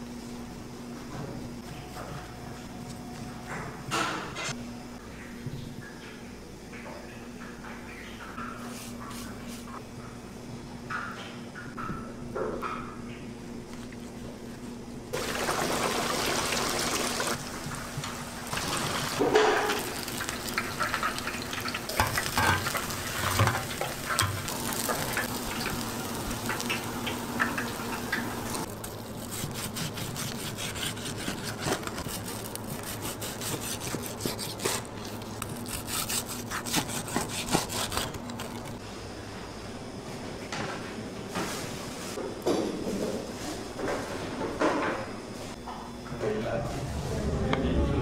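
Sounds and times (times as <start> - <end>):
hot oil sizzling and crackling: 15.2 - 28.8.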